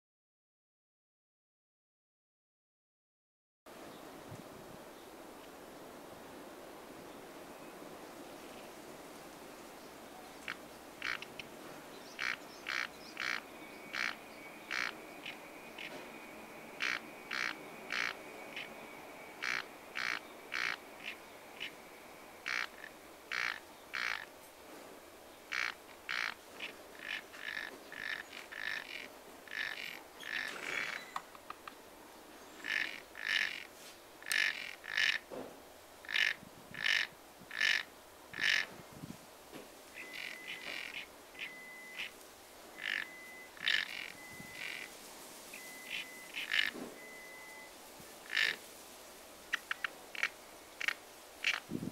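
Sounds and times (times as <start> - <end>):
faint answering frog calls: 10.4 - 11.4, 12.2 - 24.3, 25.5 - 31.2, 32.6 - 35.3, 36.0 - 38.7, 40.0 - 44.9, 45.6 - 48.6, 49.5 - 51.7
frog croaking: 10.4 - 11.5, 12.1 - 24.3, 25.5 - 31.2, 32.6 - 35.3, 36.0 - 38.7, 40.0 - 42.2, 42.8 - 44.9, 45.6 - 48.6, 49.5 - 51.7
thin steady high tone: 13.4 - 23.1, 40.0 - 47.9.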